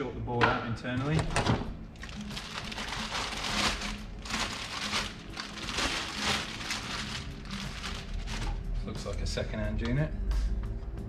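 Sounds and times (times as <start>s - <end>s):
plastic bag crinkling: 2.0s - 8.7s.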